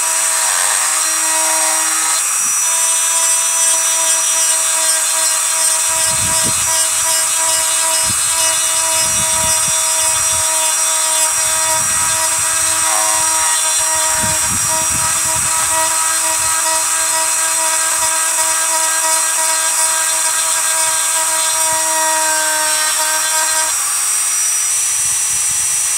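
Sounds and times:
rotary tool whining: 0.0s - 25.9s
bit grinding into bone: 3.2s - 23.7s.

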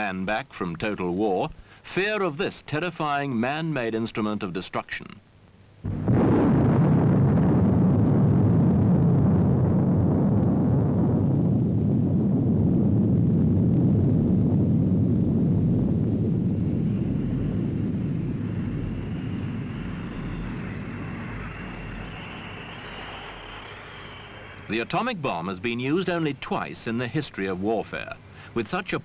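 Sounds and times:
bomb explosion with low rumble: 5.9s - 24.9s.

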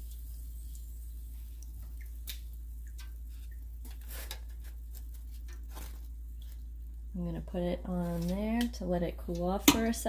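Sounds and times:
metal tongs tapping wire basket: 9.4s - 10.0s.

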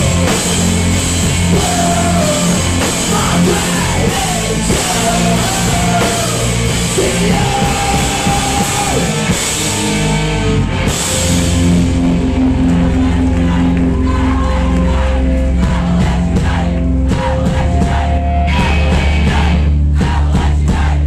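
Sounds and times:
guitar and bass chord ringing: 0.0s - 19.9s
punk rock band playing live: 0.0s - 21.0s
person singing: 1.4s - 9.3s.

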